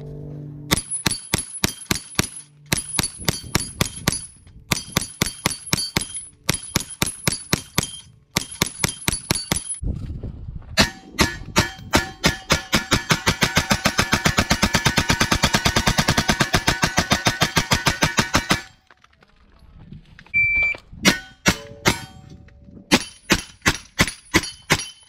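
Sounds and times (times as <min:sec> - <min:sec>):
steel targets clanging: 0:00.7 - 0:09.8, 0:10.8 - 0:14.6, 0:21.0 - 0:25.0
gunshots: 0:10.8 - 0:18.8.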